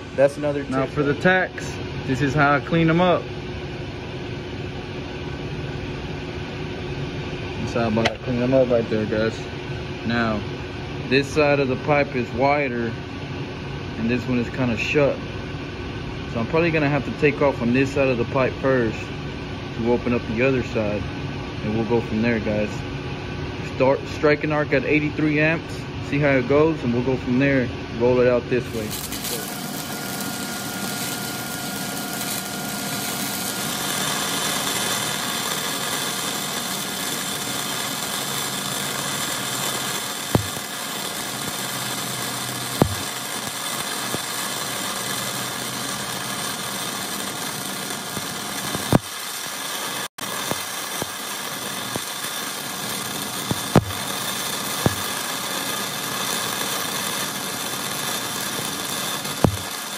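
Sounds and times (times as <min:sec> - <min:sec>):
welding arc crackling hiss: 0:00.0 - 0:03.2, 0:27.2 - 0:59.9
sharp welding pops: 0:07.9 - 0:08.4, 0:28.6 - 0:59.9.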